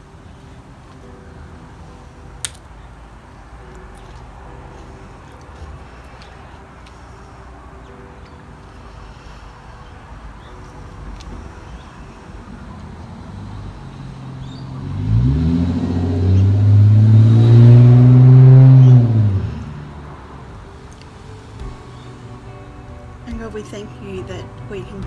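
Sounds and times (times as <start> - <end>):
vehicle engine revving: 12.7 - 20.5.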